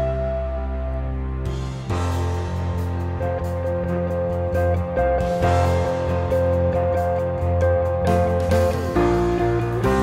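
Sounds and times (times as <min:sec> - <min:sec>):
gentle instrumental ballad: 0:00.0 - 0:10.0.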